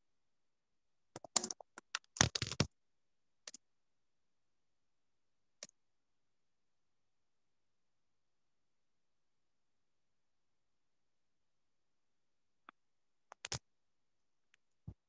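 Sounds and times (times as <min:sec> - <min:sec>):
sharp clicks and clatter: 0:01.2 - 0:02.7.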